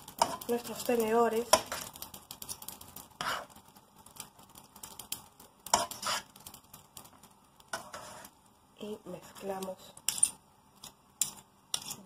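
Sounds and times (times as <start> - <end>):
forks scraping a frying pan: 0.0 - 3.6, 5.6 - 6.6, 7.7 - 8.4, 9.2 - 12.0.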